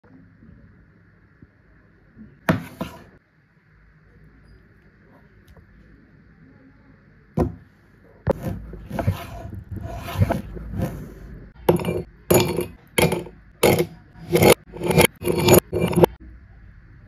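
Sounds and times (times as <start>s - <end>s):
knife cutting on wooden board: 8.3s - 11.1s, 11.7s - 16.1s.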